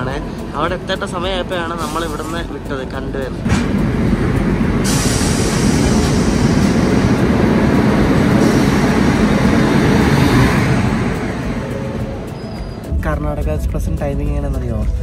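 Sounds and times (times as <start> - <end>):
train wheels clattering on rails: 3.3 - 12.9
hiss: 4.8 - 7.0.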